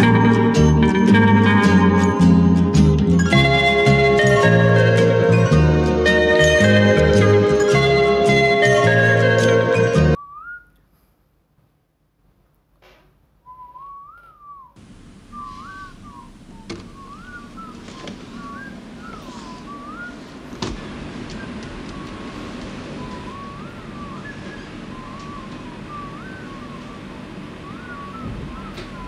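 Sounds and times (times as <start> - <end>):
person whistling a tune: 3.2 - 10.8, 13.5 - 20.3, 22.9 - 29.0.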